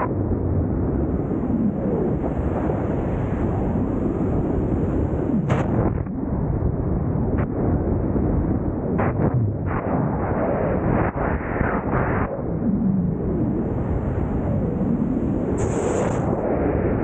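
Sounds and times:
wind buffeting microphone: 0.0s - 17.0s
sharp crackle: 15.5s - 16.4s.

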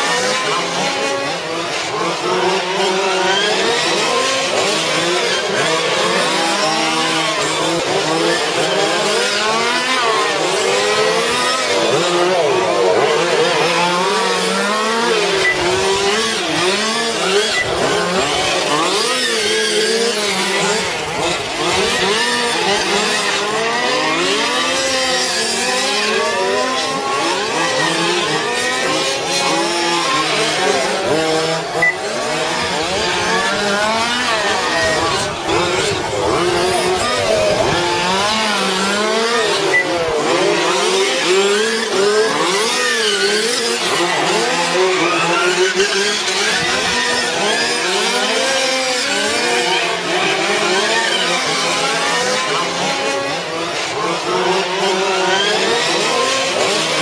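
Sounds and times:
rc car motors revving: 0.0s - 57.0s.

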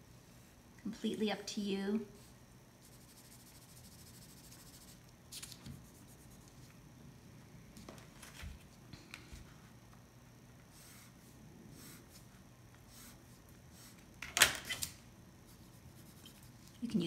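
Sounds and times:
pencil drawing on tracing paper: 2.8s - 5.0s, 10.7s - 14.0s, 15.5s - 16.6s
paper rustling: 7.8s - 8.7s.

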